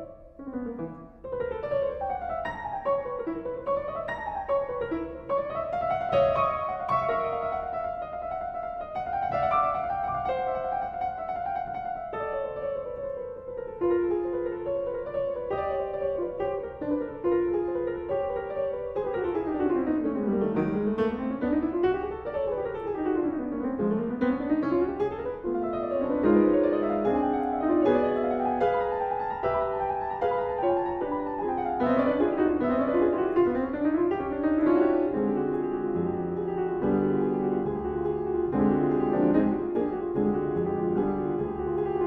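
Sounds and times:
piano playing quick runs: 0:14.0 - 0:42.0.

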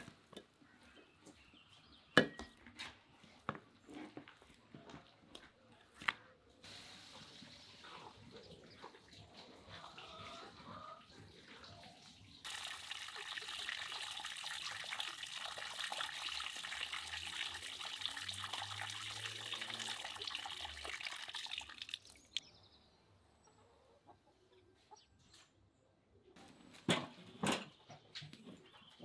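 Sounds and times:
hose water splashing on meat: 0:11.6 - 0:22.4.

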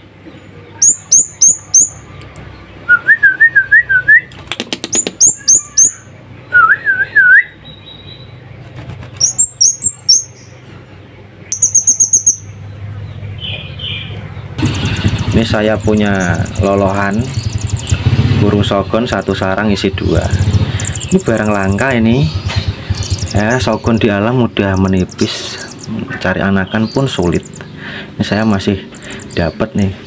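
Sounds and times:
songbird chirping: 0:00.0 - 0:30.0
bird trill: 0:00.7 - 0:03.0, 0:04.8 - 0:10.6, 0:11.4 - 0:30.0
wavering bird whistle: 0:00.8 - 0:02.0, 0:04.9 - 0:08.1, 0:09.2 - 0:10.5, 0:11.5 - 0:12.5, 0:14.6 - 0:18.2, 0:20.8 - 0:22.0.

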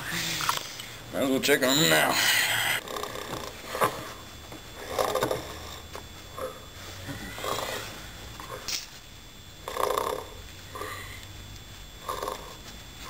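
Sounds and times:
person snoring: 0:02.1 - 0:03.6, 0:06.4 - 0:08.6, 0:09.6 - 0:11.2, 0:12.0 - 0:12.6.

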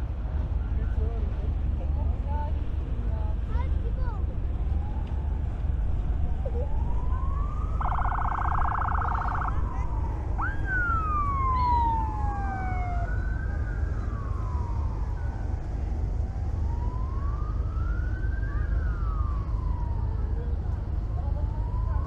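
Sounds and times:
steady low rumble: 0:00.0 - 0:22.0
emergency siren wailing: 0:04.5 - 0:22.0.

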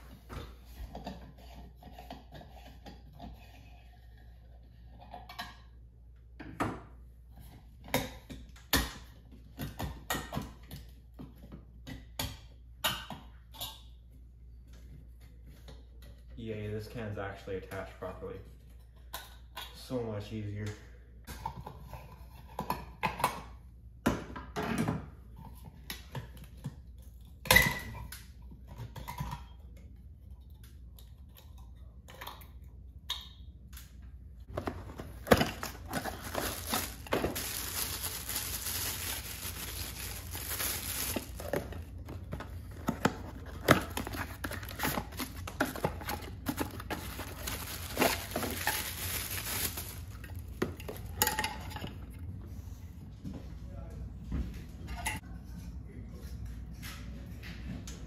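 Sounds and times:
cardboard and plastic bag rustling: 0:34.5 - 0:51.1.

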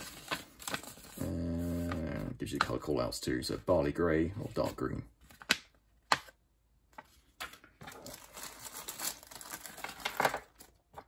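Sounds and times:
plastic bag crinkling: 0:07.9 - 0:11.0.

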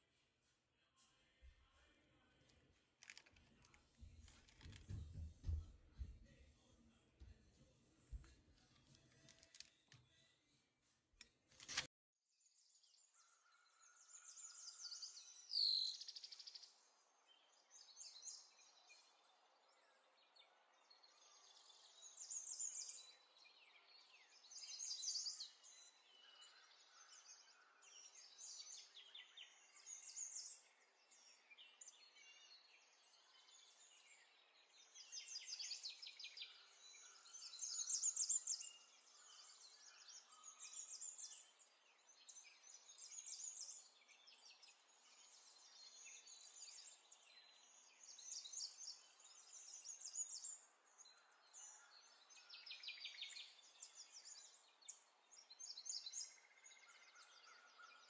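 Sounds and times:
small birds chirping: 0:01.0 - 0:10.5, 0:11.2 - 0:58.0
sharp click: 0:11.2 - 0:11.9.

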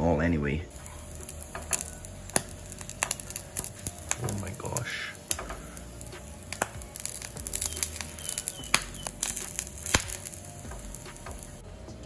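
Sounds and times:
eggs frying popping and crackling: 0:00.7 - 0:11.6.

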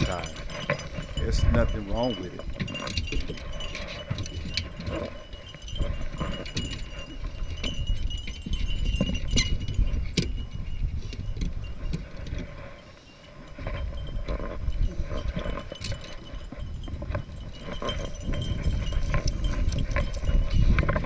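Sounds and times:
metallic jingling of dog collars: 0:00.0 - 0:21.0.

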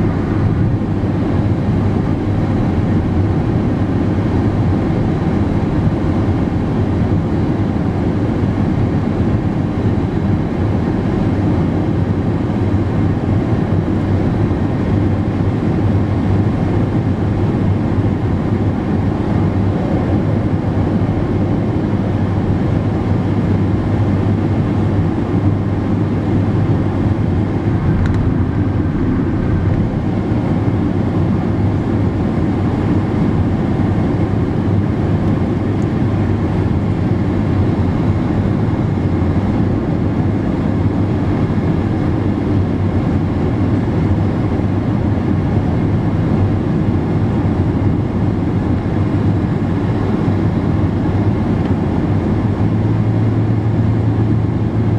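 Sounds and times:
car road and wind noise: 0:00.0 - 0:54.9.

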